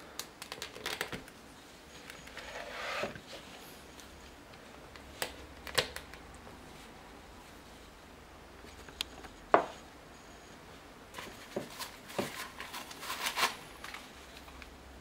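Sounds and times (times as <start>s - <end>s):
paper rustling: 11.2s - 14.6s.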